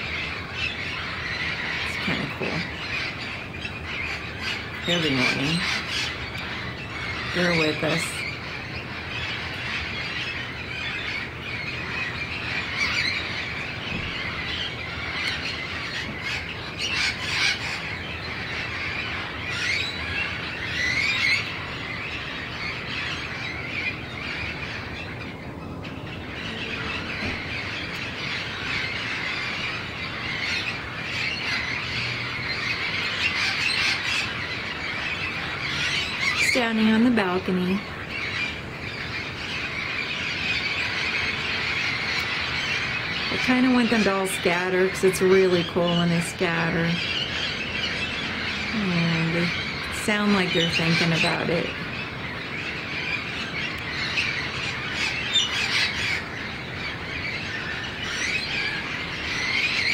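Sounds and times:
flock of parrots calling: 0.0s - 59.9s.

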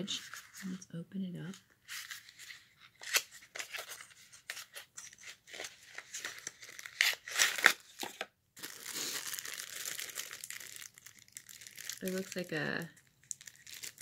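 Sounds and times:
plastic bag crinkling: 6.1s - 14.0s.

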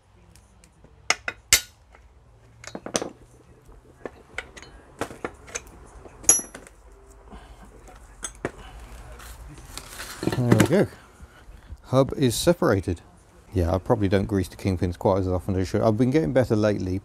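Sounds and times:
metal parts clinking: 4.4s - 6.8s.

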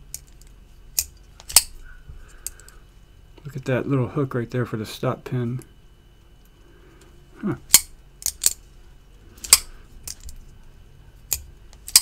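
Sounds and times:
folding knife blade clicking: 9.4s - 10.3s, 11.3s - 12.0s.

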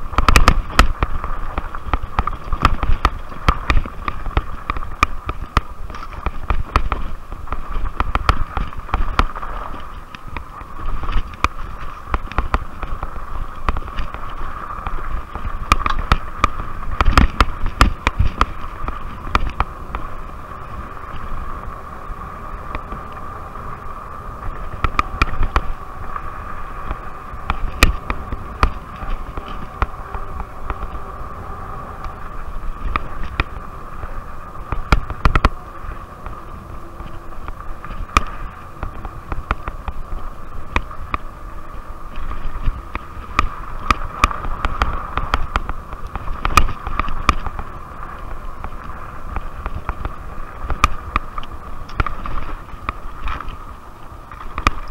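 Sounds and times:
bike clicks and rattles: 0.0s - 54.9s
wind rumble on microphone: 0.0s - 54.9s
electric bike motor whine: 19.2s - 52.1s.

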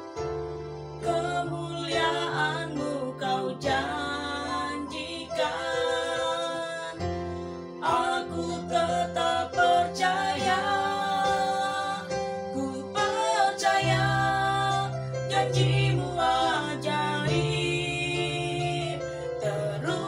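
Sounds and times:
electronic keyboard: 0.0s - 20.0s
woman singing: 1.0s - 7.1s, 7.8s - 20.0s.

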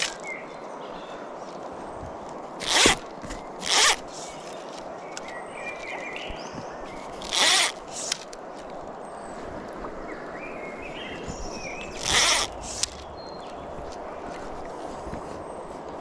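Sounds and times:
fly reel buzzing: 3.6s - 4.5s, 7.2s - 8.3s, 11.9s - 13.1s.

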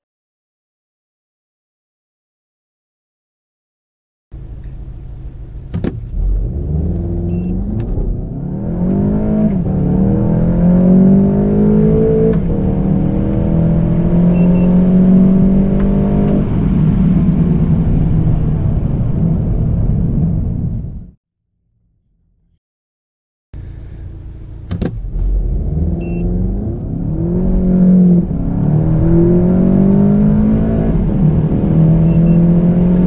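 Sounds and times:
car engine accelerating: 4.4s - 21.2s, 23.6s - 33.0s.

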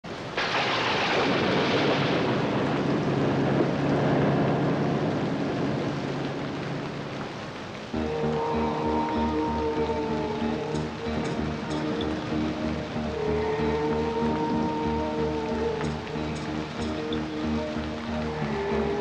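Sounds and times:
music: 8.0s - 19.0s.

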